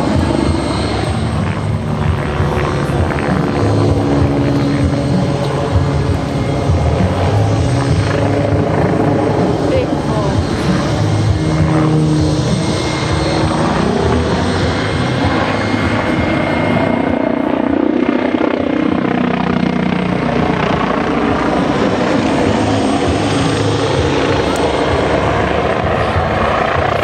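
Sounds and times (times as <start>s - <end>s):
helicopter engines running: 0.0s - 27.0s
helicopter rotor beating: 0.0s - 27.0s.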